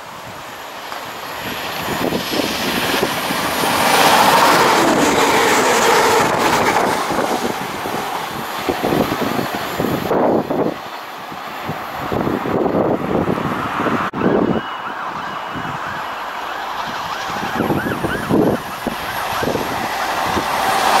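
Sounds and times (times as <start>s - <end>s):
diesel train passing at speed: 0.0s - 21.0s.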